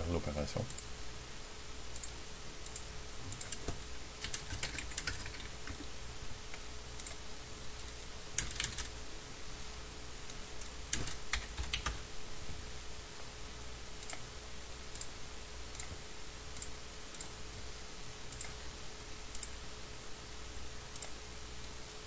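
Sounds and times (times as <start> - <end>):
faint steady hum: 0.0 - 22.0
keyboard keys clicking: 2.0 - 5.9, 7.8 - 8.9, 10.6 - 12.0.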